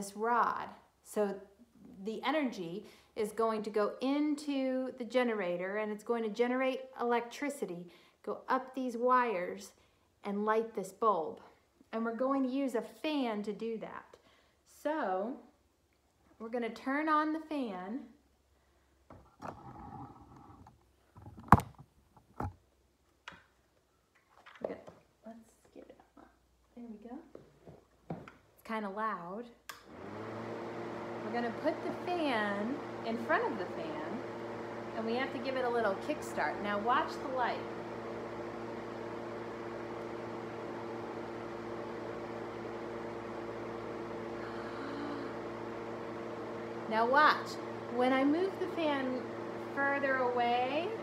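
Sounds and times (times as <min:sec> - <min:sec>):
electric fan running: 0:29.7 - 0:51.0.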